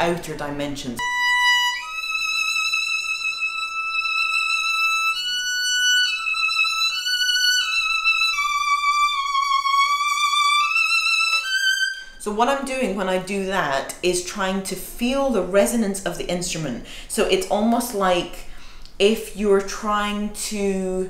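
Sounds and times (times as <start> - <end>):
violin playing high notes: 1.0 - 12.2.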